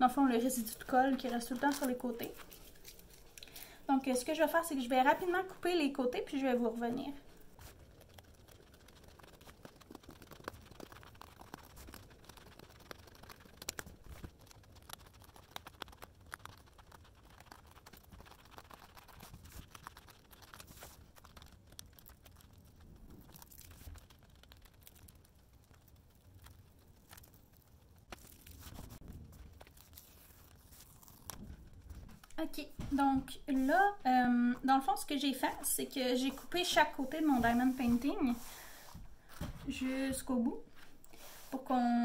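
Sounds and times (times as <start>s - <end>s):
canvas rustling: 0.0s - 5.5s, 26.8s - 41.8s.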